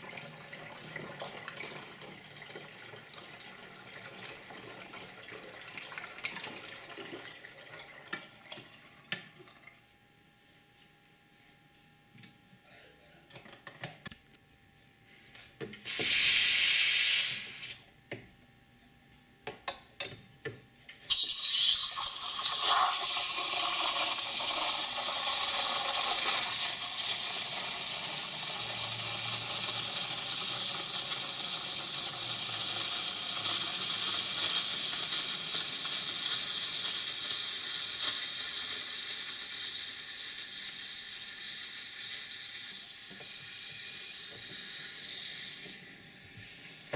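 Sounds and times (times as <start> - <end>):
steam wand hissing: 15.9 - 17.8, 21.1 - 46.9.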